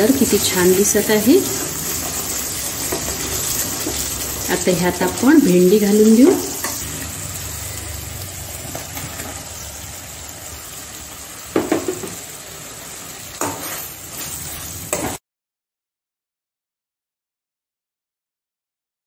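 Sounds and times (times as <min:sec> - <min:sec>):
gravy sizzling in a pan: 0:00.0 - 0:15.2
ladle knocking against pan: 0:11.6 - 0:12.2.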